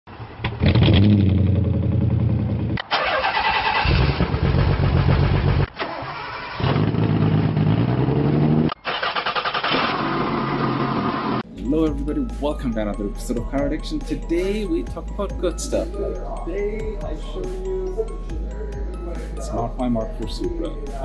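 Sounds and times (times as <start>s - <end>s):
car engines starting and revving: 0.1s - 12.2s.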